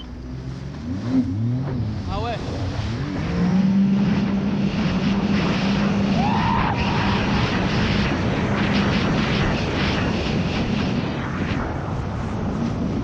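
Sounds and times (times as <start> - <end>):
watercraft engine hum: 0.0 - 7.4
wind and water noise: 0.0 - 13.0.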